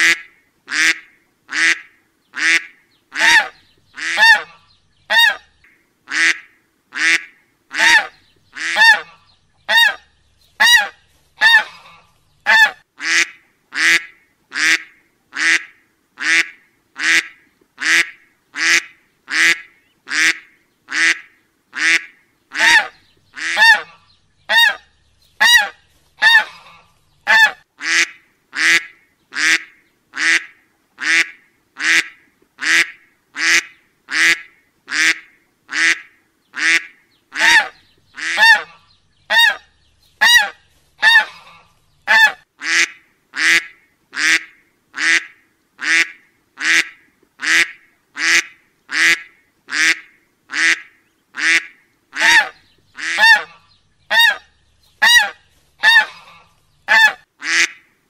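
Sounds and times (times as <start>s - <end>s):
duck quacking: 0.0s - 5.5s, 6.1s - 10.0s, 10.6s - 57.9s.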